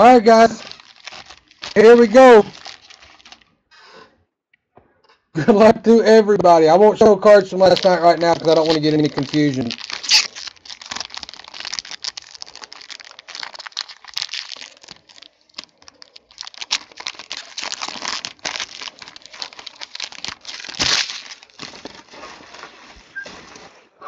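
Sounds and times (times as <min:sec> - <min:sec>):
card pack wrappers crinkling and tearing: 0:00.0 - 0:03.5, 0:07.3 - 0:24.0.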